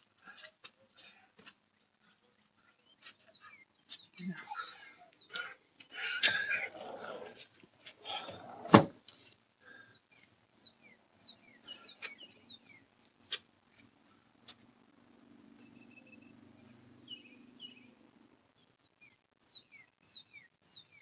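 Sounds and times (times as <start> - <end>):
door banging shut: 8.6 - 9.0.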